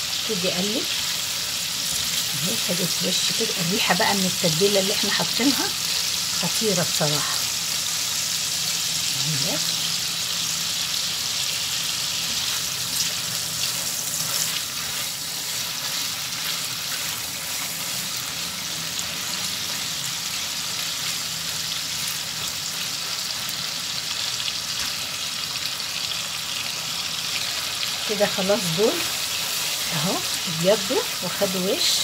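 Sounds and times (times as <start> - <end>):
chicken sizzling in frying pan: 0.0 - 32.0
spatula stirring in pan: 12.2 - 20.0.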